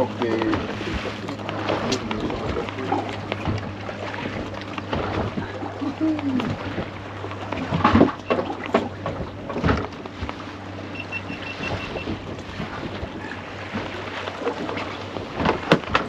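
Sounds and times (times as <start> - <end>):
knocks and clatter on boat: 0.0 - 16.0
steady low hum: 0.0 - 16.0
high beeps: 10.9 - 12.1.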